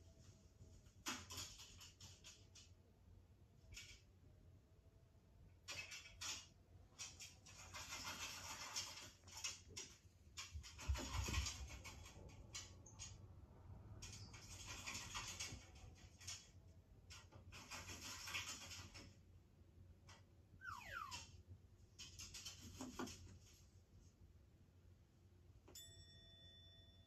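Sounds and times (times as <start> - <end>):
scratchy rustling: 7.1 - 12.2.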